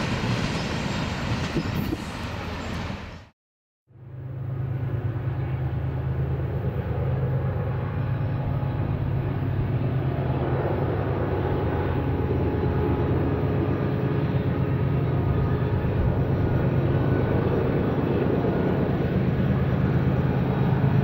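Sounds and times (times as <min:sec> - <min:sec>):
train rumbling: 0:00.0 - 0:03.3.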